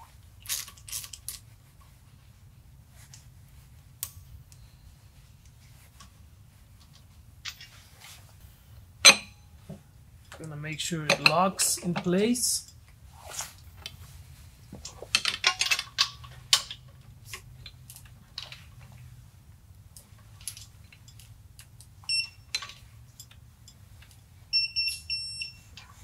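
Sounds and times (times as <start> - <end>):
tool clicks and metal clatter: 14.8 - 18.8, 20.4 - 24.2.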